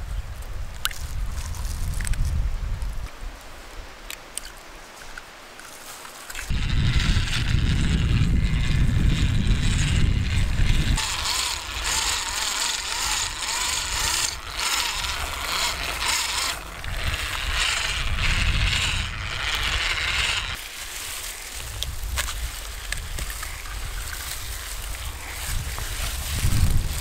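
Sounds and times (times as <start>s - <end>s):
electric hand mixer churning: 6.5s - 20.8s, 21.6s - 27.0s.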